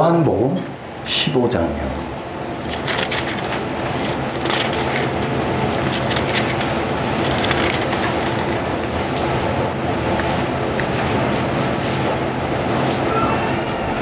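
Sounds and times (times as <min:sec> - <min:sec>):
thin pages rustling and flipping: 0:02.6 - 0:09.4.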